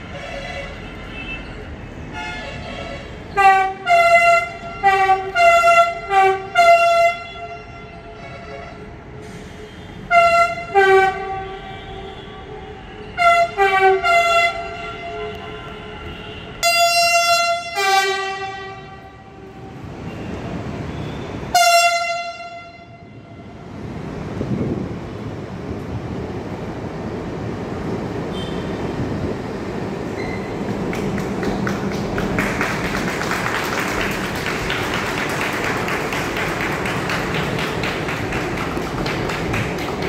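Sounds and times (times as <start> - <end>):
train horn toots: 2.1 - 20.3, 21.3 - 23.6.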